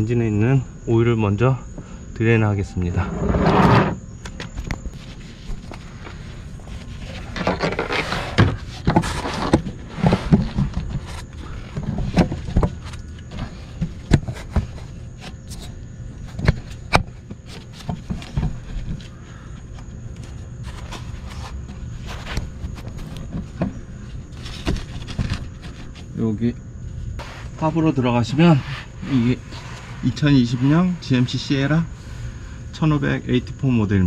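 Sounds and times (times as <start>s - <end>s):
rustling: 4.8s - 26.2s, 26.9s - 32.2s.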